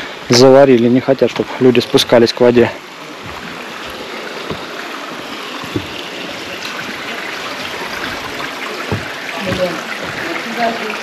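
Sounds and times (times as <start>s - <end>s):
stream running over stones: 0.0s - 11.0s
soft knock: 3.2s - 4.8s, 5.6s - 6.1s, 8.0s - 10.5s.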